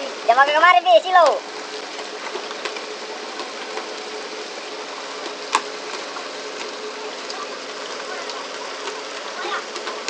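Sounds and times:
faint steady hum: 0.0s - 10.0s
water rushing: 0.0s - 10.0s.

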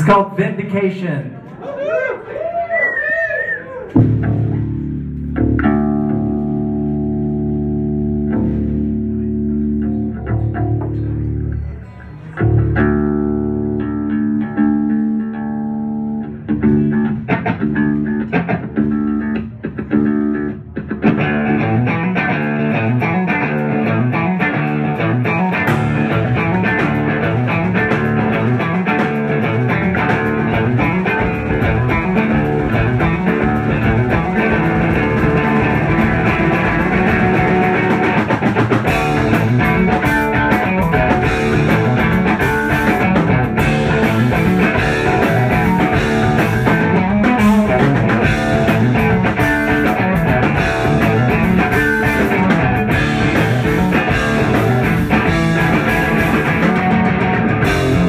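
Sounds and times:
electric guitar chords: 3.9s - 58.0s
drums and cymbals: 24.8s - 58.0s.

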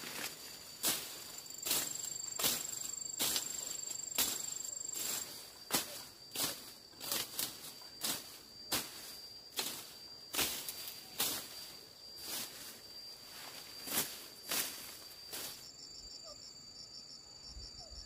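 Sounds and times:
sharp rustling strikes: 0.0s - 12.7s
insects trilling: 0.0s - 18.0s.

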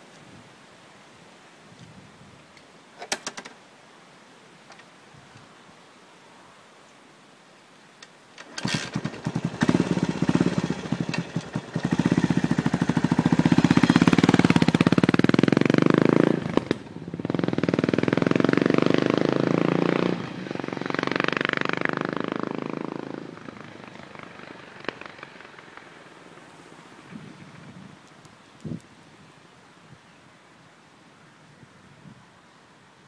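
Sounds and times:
motorcycle engine revving and accelerating: 8.6s - 25.8s.

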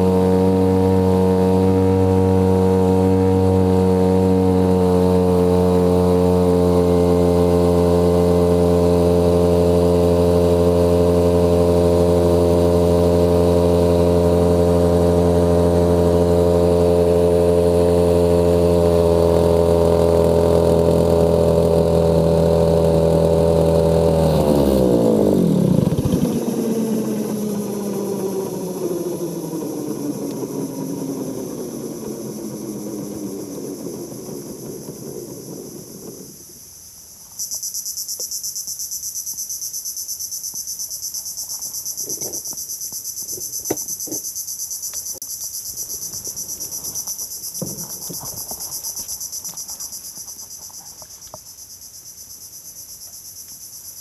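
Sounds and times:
small outboard boat motor: 0.0s - 38.3s, 40.4s - 51.4s
high-pitched insect chorus: 26.0s - 54.0s.

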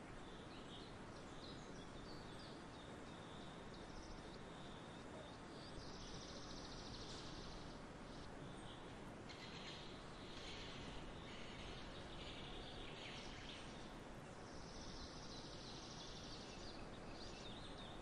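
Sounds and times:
background hiss: 0.0s - 18.0s
faint bird chirps: 0.1s - 18.0s.

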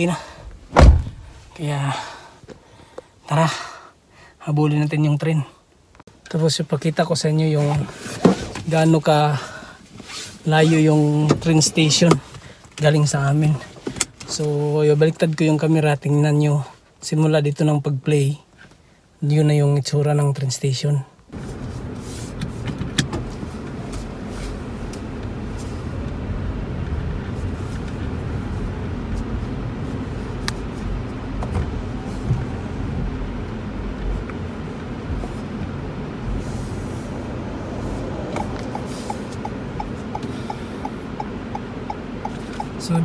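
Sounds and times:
car engine and tyre noise: 0.0s - 3.2s, 5.8s - 15.6s, 21.2s - 43.0s
fast regular ticking: 38.4s - 42.9s.

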